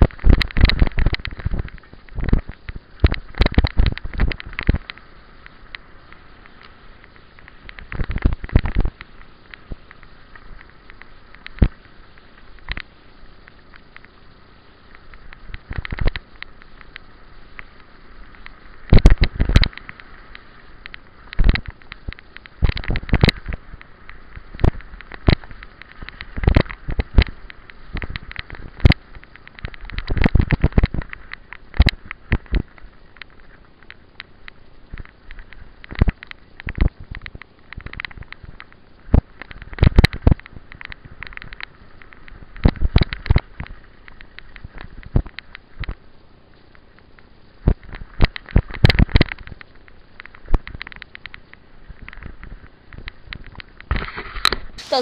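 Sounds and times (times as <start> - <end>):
tyres rolling hiss: 54.8 - 55.0.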